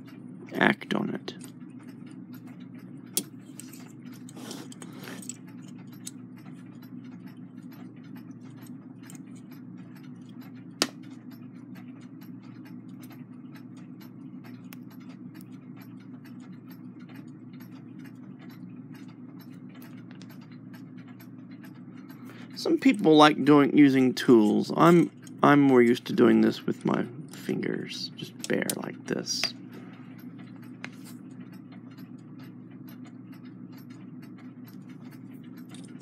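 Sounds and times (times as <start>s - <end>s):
clock ticking: 0.0s - 36.0s
low steady hum: 0.0s - 36.0s
click of clock parts handled: 1.3s - 11.3s, 28.2s - 29.7s, 30.3s - 36.0s.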